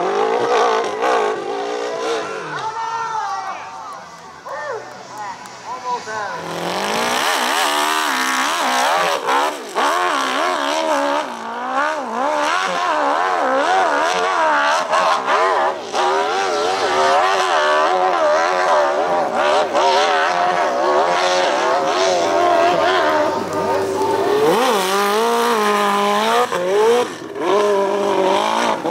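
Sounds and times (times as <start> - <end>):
motorcycle engine revving: 0.0 - 2.3, 6.0 - 28.9.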